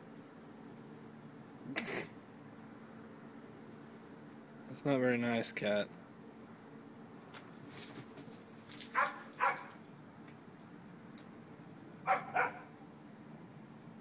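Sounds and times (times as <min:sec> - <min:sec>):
dog barking: 0:08.9 - 0:09.7, 0:12.0 - 0:12.7.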